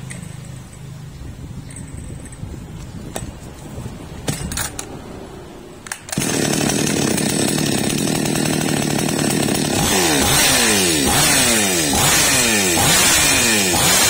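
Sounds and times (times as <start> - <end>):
chainsaw engine running: 6.1 - 14.0.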